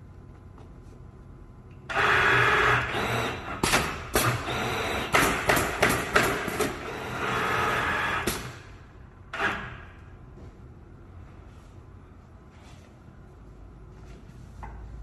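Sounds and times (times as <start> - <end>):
machine motor whine: 1.9 - 3.6
sharp pneumatic clacks: 3.2 - 6.9, 8.2 - 8.7, 9.3 - 10.0.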